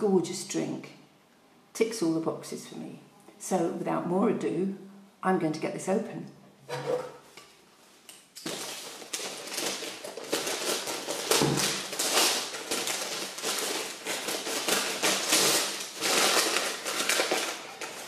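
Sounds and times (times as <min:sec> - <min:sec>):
paper rustling and tearing: 0:08.4 - 0:18.0.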